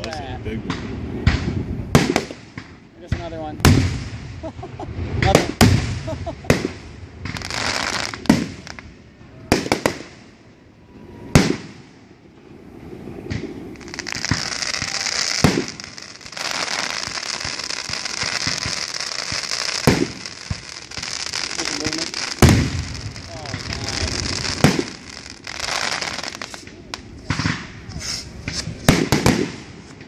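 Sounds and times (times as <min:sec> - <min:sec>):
dense firework crackling: 0:00.0 - 0:30.0
firework shells bursting: 0:13.2 - 0:30.0.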